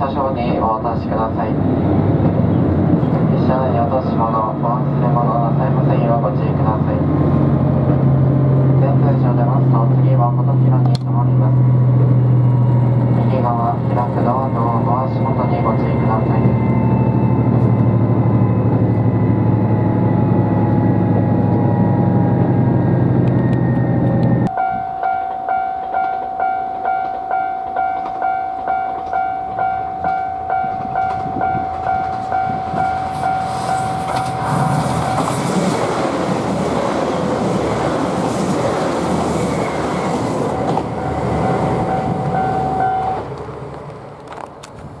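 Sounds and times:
level crossing alarm ringing: 0:24.5 - 0:35.4, 0:40.4 - 0:43.3.

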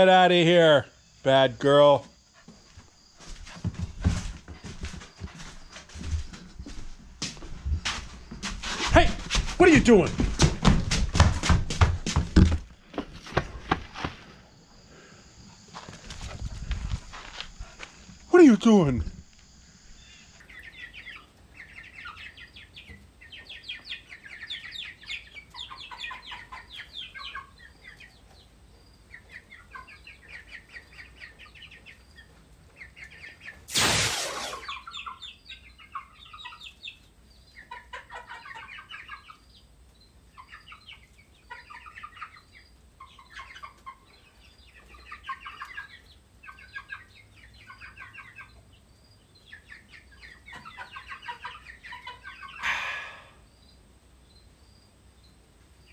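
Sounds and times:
chickens clucking: 0:02.1 - 0:18.2, 0:19.9 - 0:33.7, 0:34.4 - 0:55.9
loud noisy burst: 0:33.7 - 0:34.7.

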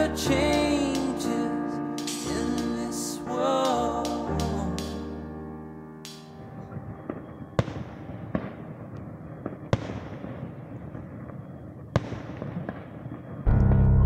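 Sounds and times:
fireworks crackling: 0:00.0 - 0:05.1, 0:06.0 - 0:13.5
fireworks bangs: 0:06.1 - 0:13.5.

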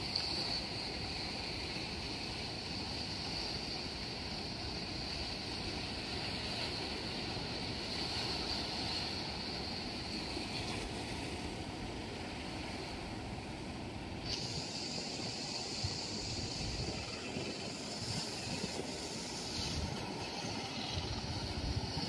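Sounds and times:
constant high hiss: 0:00.0 - 0:22.0
sea surf: 0:00.0 - 0:22.0
wind on microphone: 0:05.6 - 0:22.0.

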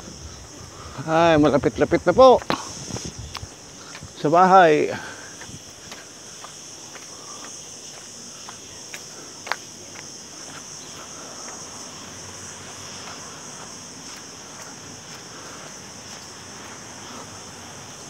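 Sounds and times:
high-pitched insect drone: 0:00.0 - 0:18.0
footsteps on concrete: 0:02.4 - 0:04.4, 0:05.0 - 0:17.3.

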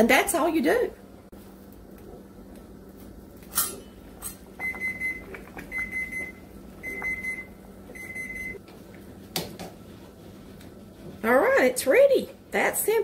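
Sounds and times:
kitchen timer beeping: 0:04.6 - 0:08.6.

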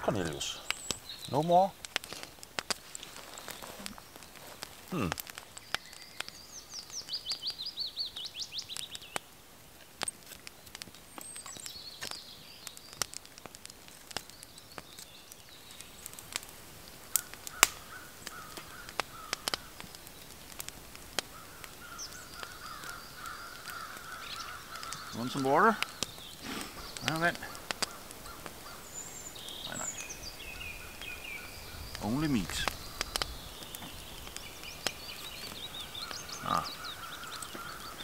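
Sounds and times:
wood fire crackling: 0:00.0 - 0:38.0
songbird trilling: 0:21.4 - 0:38.0.

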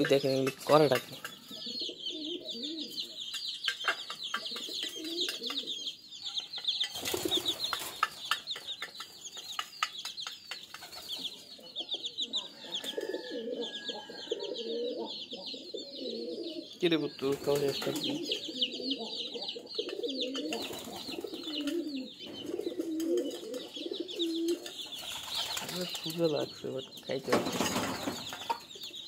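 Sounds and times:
birds chirping and twittering: 0:00.0 - 0:29.0
pigeons cooing: 0:00.0 - 0:29.0.

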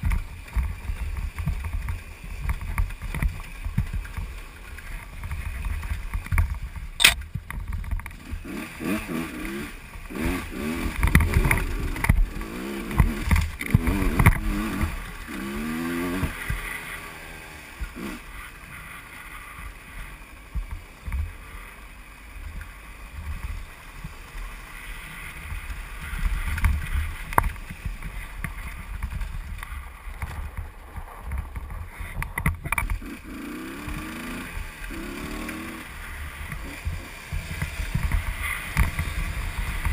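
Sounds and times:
sharp knock: 0:07.0 - 0:07.2
dirt bike engine revving: 0:08.1 - 0:20.1, 0:31.9 - 0:39.9.

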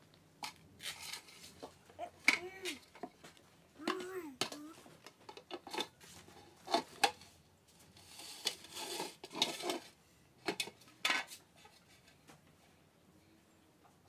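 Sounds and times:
metal tin clattering on tiles: 0:05.3 - 0:06.0, 0:08.0 - 0:11.8.

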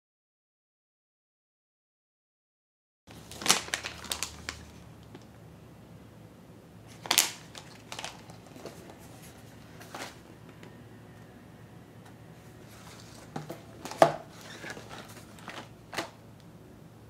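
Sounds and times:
plastic pouches crinkling: 0:03.1 - 0:05.3, 0:06.9 - 0:10.6, 0:12.6 - 0:16.2
cardboard boxes clacking: 0:12.7 - 0:16.1.

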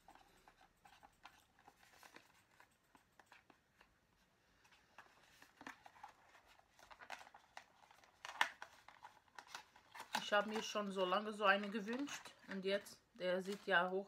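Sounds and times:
packaging rustling and clicking: 0:00.0 - 0:04.0, 0:04.6 - 0:14.0.

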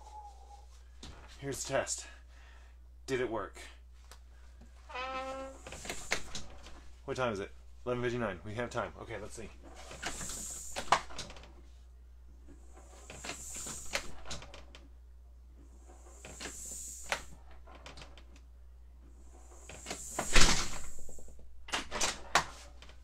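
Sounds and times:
screen door banging shut: 0:19.9 - 0:21.1
screen door rattling: 0:20.0 - 0:22.6.

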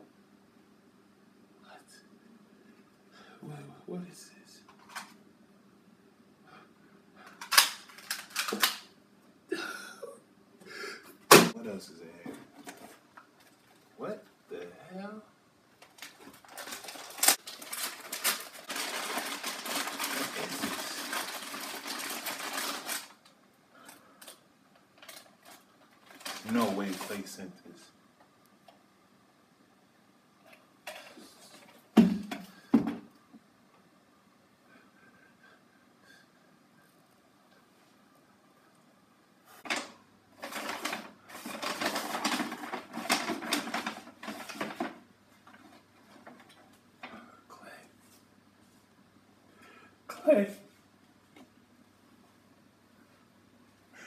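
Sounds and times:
plastic bag crinkling: 0:07.4 - 0:08.8, 0:15.8 - 0:27.4, 0:39.6 - 0:46.7
paper and cardboard rustling: 0:15.8 - 0:23.2, 0:24.9 - 0:27.4, 0:39.6 - 0:46.7.

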